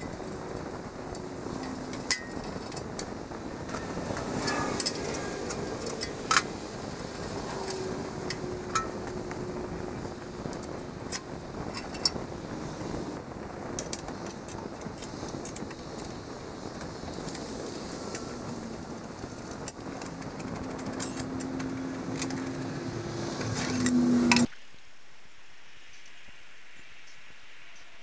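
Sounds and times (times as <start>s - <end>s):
tools clicking and clinking on metal: 0.0s - 9.7s, 10.5s - 12.3s, 13.8s - 24.5s
steady hiss: 0.0s - 28.0s.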